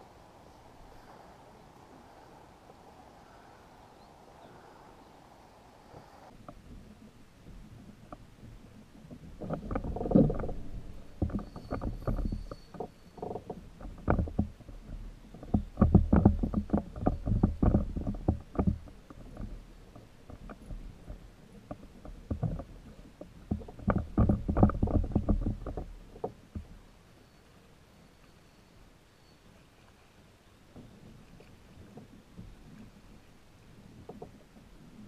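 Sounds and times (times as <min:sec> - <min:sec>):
knocks and taps on kayak hull: 0:08.0 - 0:26.8.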